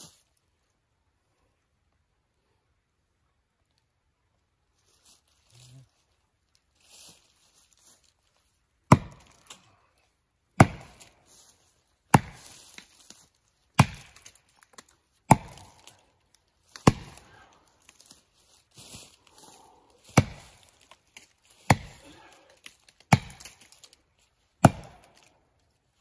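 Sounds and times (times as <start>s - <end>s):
axe chopping into tree trunk: 8.9s - 9.6s, 10.6s - 11.2s, 12.1s - 12.9s, 13.8s - 14.4s, 15.3s - 16.0s, 16.7s - 17.4s, 20.0s - 20.9s, 21.6s - 22.3s, 23.0s - 23.9s, 24.6s - 25.3s.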